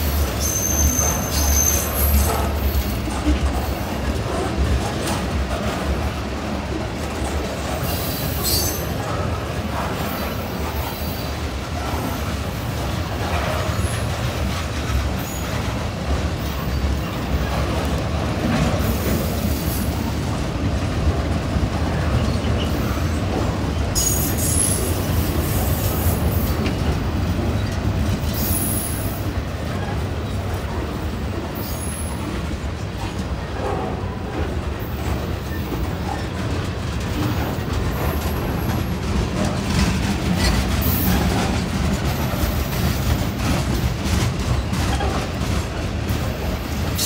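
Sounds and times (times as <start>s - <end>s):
freight cars rumbling on rails: 0.0s - 47.0s
high wheel squeals: 0.2s - 2.9s.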